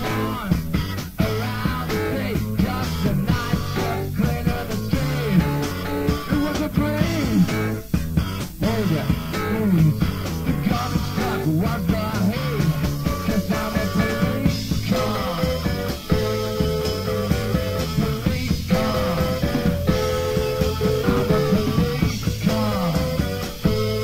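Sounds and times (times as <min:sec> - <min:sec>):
bass and drums: 0:00.0 - 0:24.0
electric guitar lead: 0:16.2 - 0:23.0.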